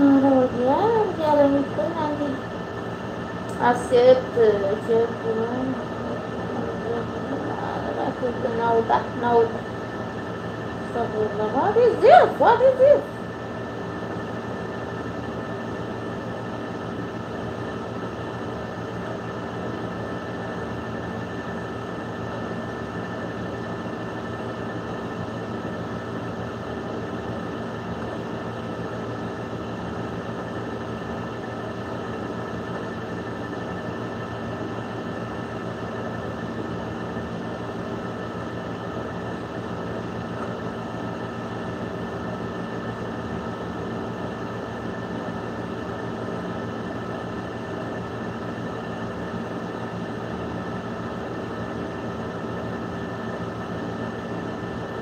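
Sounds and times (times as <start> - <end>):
steady machine hum: 0.0 - 55.0.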